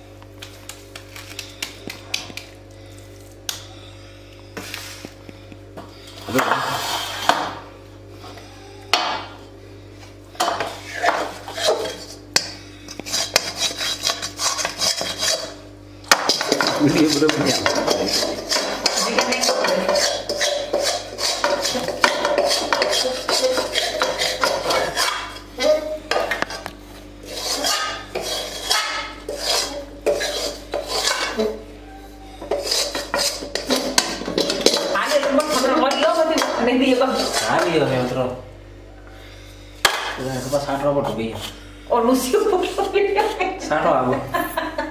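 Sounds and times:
steel ladle scraping and clanking: 10.9s - 15.6s, 16.3s - 25.4s, 27.2s - 31.5s, 32.5s - 37.8s.

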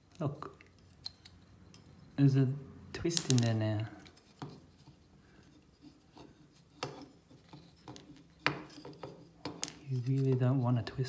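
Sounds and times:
light wooden clicks and knocks: 6.8s - 11.0s.

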